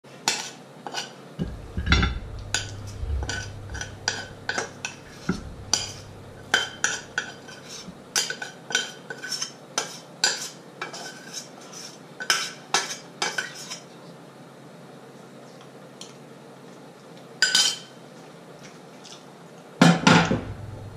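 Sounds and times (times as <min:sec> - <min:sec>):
heavier knock: 0:01.4 - 0:07.1, 0:20.3 - 0:20.9.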